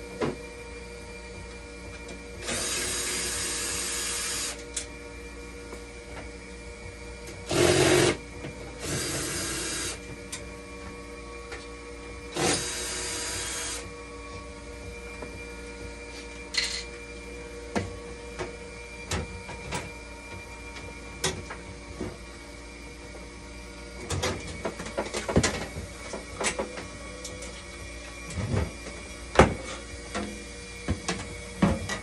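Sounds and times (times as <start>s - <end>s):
machine humming: 0.0s - 31.7s
cordless drill whirring: 2.4s - 4.6s, 7.5s - 8.2s, 8.8s - 10.0s, 12.3s - 13.8s.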